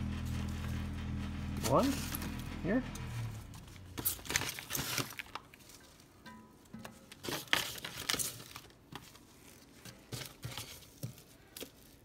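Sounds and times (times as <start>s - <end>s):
gloved hands crinkling and rustling: 3.5s - 12.0s.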